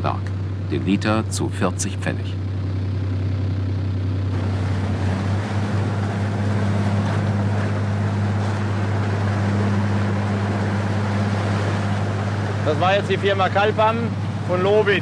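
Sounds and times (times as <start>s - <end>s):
diesel engines droning: 0.0s - 15.0s
water rushing between hulls: 4.2s - 15.0s.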